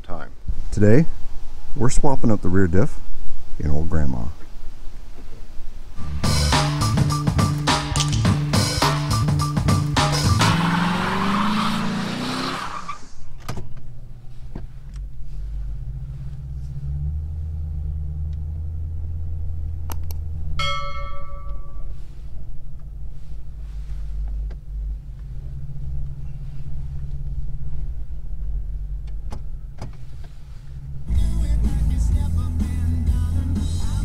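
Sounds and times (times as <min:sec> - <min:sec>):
car engine running: 0:06.0 - 0:20.7, 0:21.3 - 0:34.0
car chime: 0:20.6 - 0:22.0.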